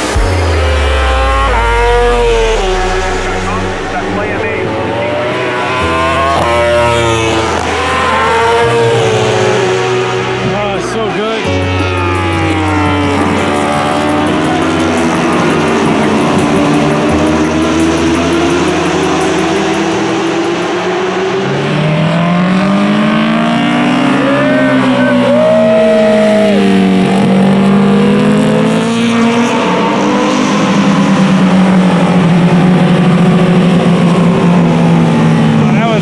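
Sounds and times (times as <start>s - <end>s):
racing motorcycles passing: 0.0s - 36.0s.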